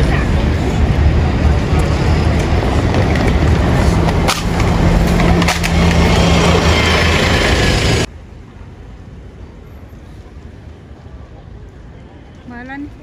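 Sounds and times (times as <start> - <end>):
bus engine running: 0.0 - 8.1
dense rushing noise: 0.0 - 11.0.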